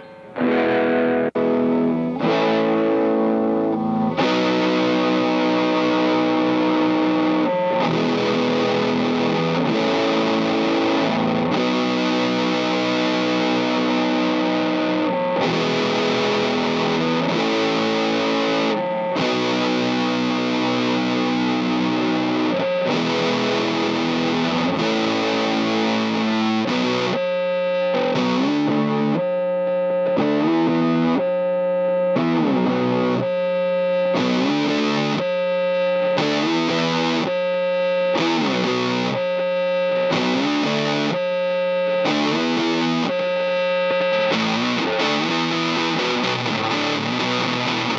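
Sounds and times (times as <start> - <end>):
distorted electric guitar chords: 0.0 - 47.9.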